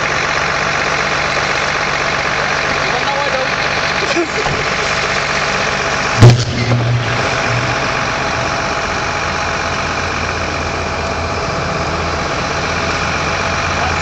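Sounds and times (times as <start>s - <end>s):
vehicle engine idling: 0.0s - 14.0s
loud sharp bang: 6.2s - 7.8s.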